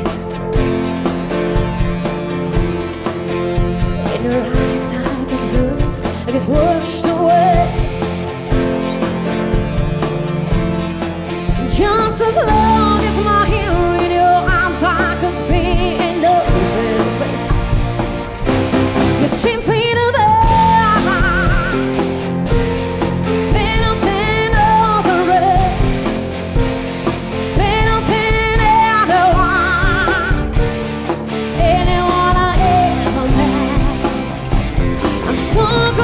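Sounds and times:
live rock band playing: 0.0s - 36.0s
woman singing: 4.0s - 8.2s, 11.5s - 17.9s, 19.1s - 22.1s, 23.4s - 26.2s, 27.5s - 30.6s, 31.5s - 36.0s.

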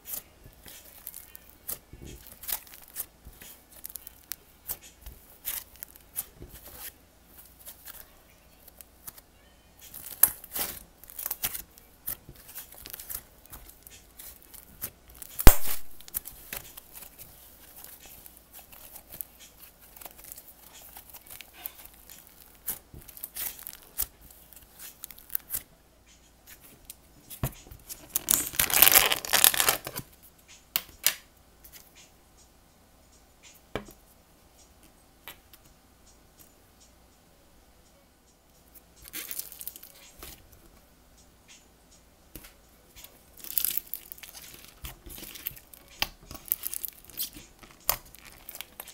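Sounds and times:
slime squishing and popping: 9.9s - 16.8s, 28.1s - 30.0s, 43.4s - 48.9s.

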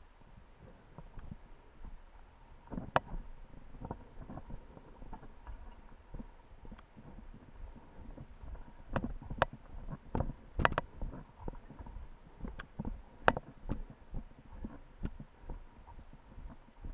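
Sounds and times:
wind on microphone: 0.0s - 16.9s.

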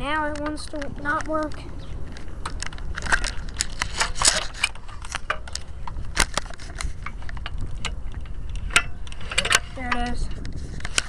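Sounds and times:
camera handling clicks and knocks: 2.0s - 9.7s.

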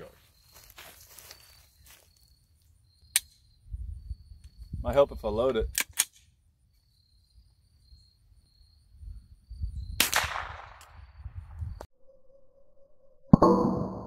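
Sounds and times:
rifle shot: 10.0s - 11.0s.

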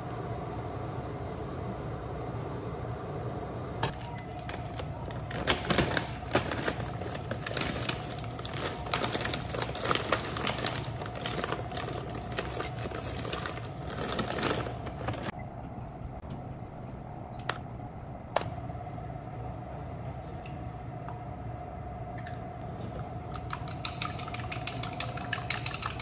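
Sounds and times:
steady low hum: 0.0s - 26.0s
plastic bag rustling and crinkling: 4.1s - 15.3s
dumplings clicking and knocking: 23.3s - 26.0s.

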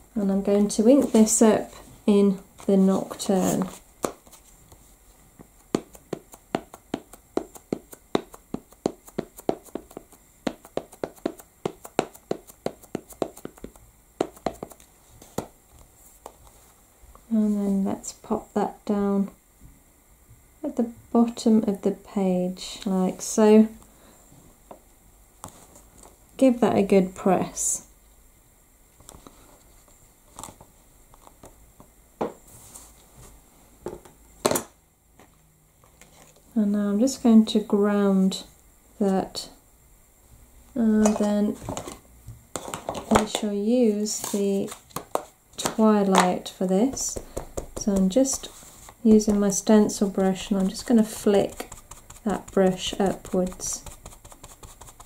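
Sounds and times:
ink pad tapping on stamp: 5.8s - 14.8s.

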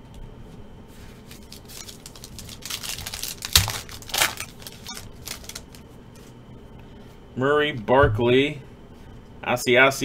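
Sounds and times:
foil wrapper crinkling: 1.2s - 5.8s.

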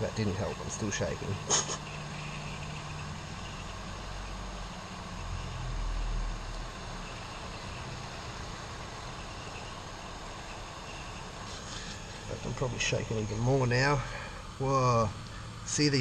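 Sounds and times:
heat gun blowing air: 1.3s - 2.7s, 9.5s - 15.6s.

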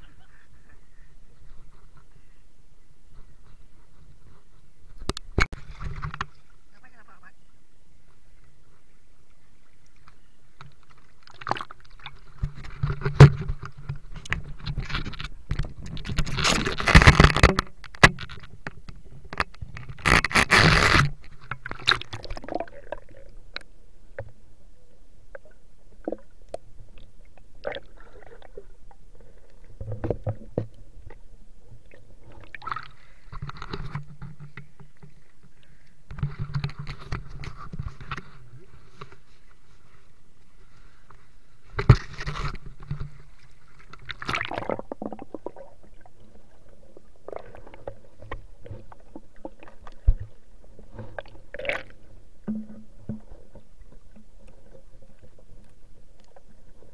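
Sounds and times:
scrapes and knocks on camera: 3.2s - 6.4s, 12.3s - 22.0s, 33.3s - 35.2s, 36.1s - 39.4s, 41.7s - 43.4s
water splashing and gurgling: 10.6s - 24.4s, 25.3s - 34.9s, 41.6s - 56.9s.

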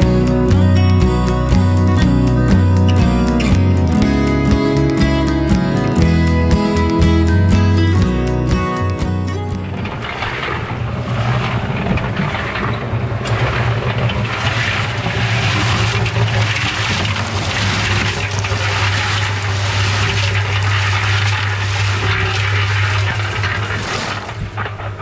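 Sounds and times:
concrete mixer motor humming: 0.0s - 25.0s
gravel tumbling in mixer drum: 8.9s - 25.0s.

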